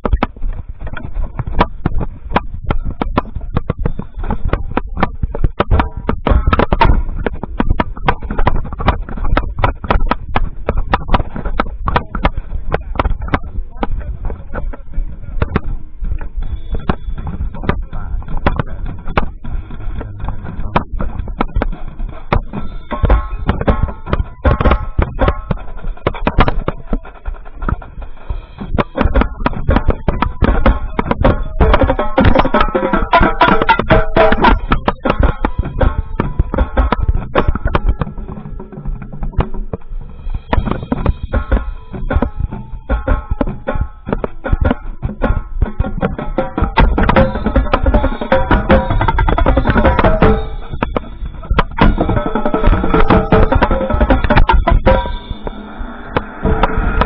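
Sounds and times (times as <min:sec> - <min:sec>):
background voices: 0:00.0 - 0:42.9
tenor drums played fast: 0:00.0 - 0:57.0.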